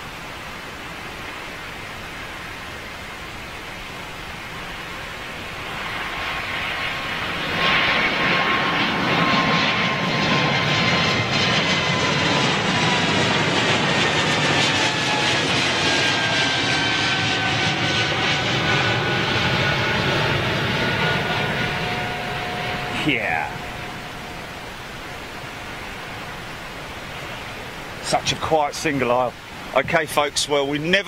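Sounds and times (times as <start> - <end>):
jet airliner climbing: 5.7 - 26.5.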